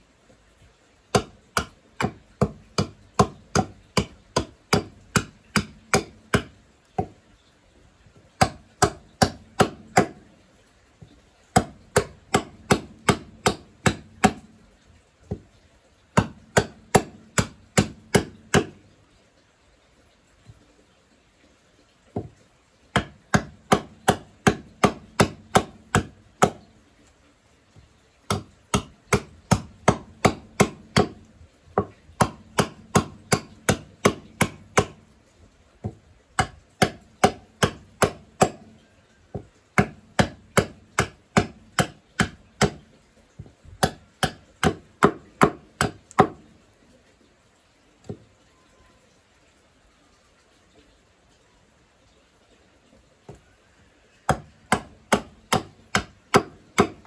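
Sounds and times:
hatchet chopping wood: 0:01.1 - 0:07.2, 0:08.1 - 0:10.3, 0:11.5 - 0:14.6, 0:15.3 - 0:15.5, 0:16.1 - 0:18.9, 0:22.2 - 0:26.7, 0:28.3 - 0:35.1, 0:35.8 - 0:46.5, 0:54.3 - 0:57.0.

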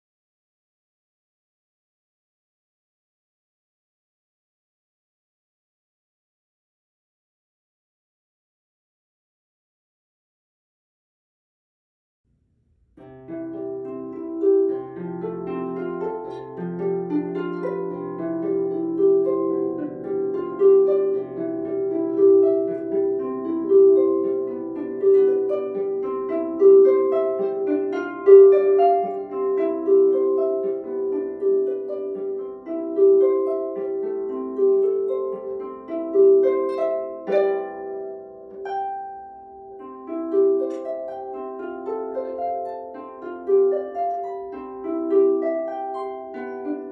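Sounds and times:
solo harp playing: 0:13.0 - 0:46.9.

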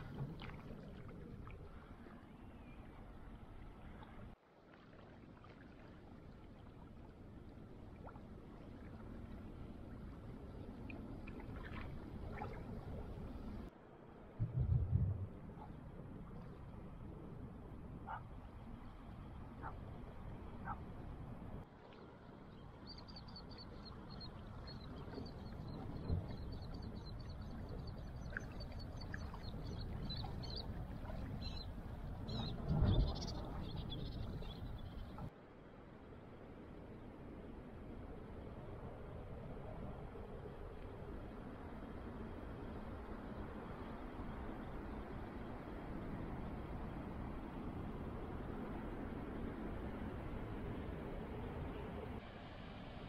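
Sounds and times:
lake water lapping: 0:00.0 - 0:02.2, 0:03.7 - 0:13.7, 0:23.6 - 0:35.3
water trickles and splashes: 0:00.0 - 0:13.8, 0:21.5 - 0:35.4
steady low rush: 0:14.2 - 0:16.1
low thump: 0:14.4 - 0:15.6.

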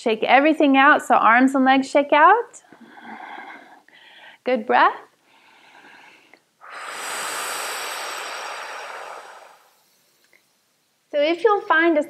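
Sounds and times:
long exhale close to microphone: 0:05.3 - 0:10.2.

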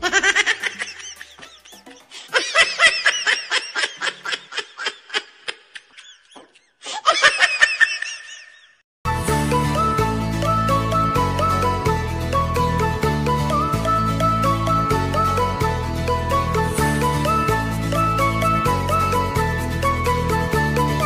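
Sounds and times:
children laughing: 0:00.0 - 0:08.8
music: 0:00.1 - 0:03.1, 0:09.0 - 0:21.0.

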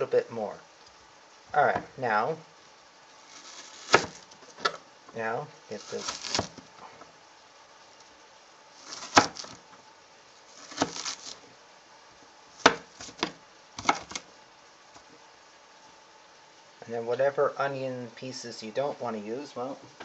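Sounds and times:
knife chopping on wooden board: 0:03.8 - 0:04.2, 0:05.9 - 0:06.6, 0:08.9 - 0:09.5, 0:10.6 - 0:11.4, 0:12.6 - 0:14.2.

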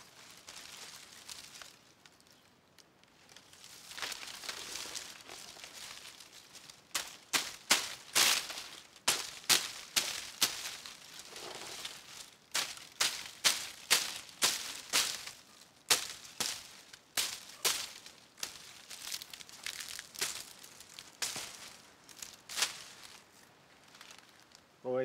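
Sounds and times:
blade cutting dry palm fronds: 0:03.4 - 0:23.2.

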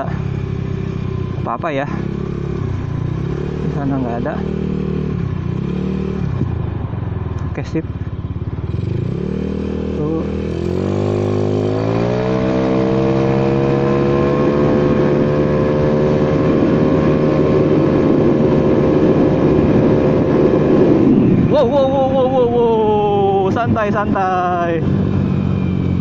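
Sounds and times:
scooter engine accelerating: 0:00.0 - 0:26.0
wind rush: 0:14.4 - 0:26.0.

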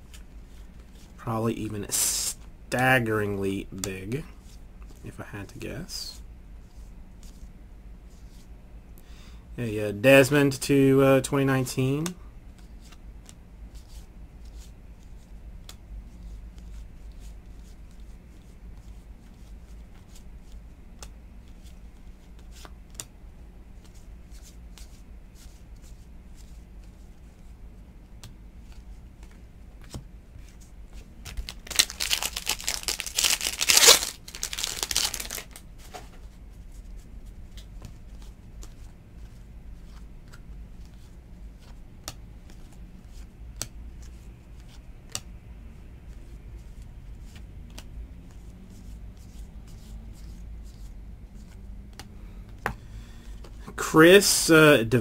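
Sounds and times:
cards being flipped: 0:30.9 - 0:36.3
wrapper tearing and crinkling: 0:31.3 - 0:35.6.

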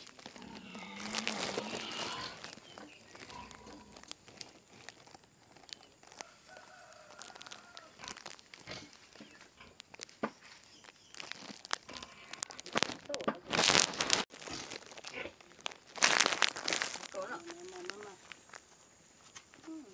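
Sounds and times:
straw bedding rustling: 0:00.0 - 0:19.9
distant rooster crowing: 0:06.2 - 0:08.0.

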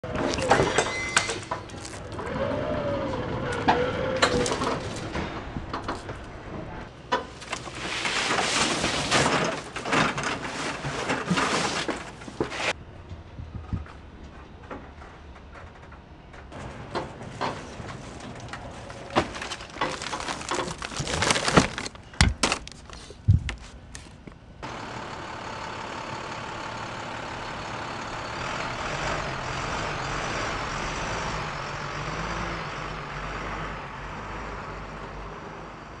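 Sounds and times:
cargo knocking and rattling: 0:14.6 - 0:23.8
truck engine running: 0:23.9 - 0:36.0.

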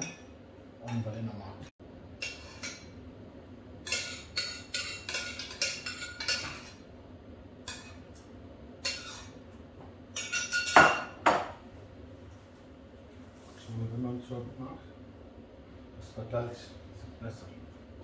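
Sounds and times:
spoon scraping in saucepan: 0:08.8 - 0:09.4.

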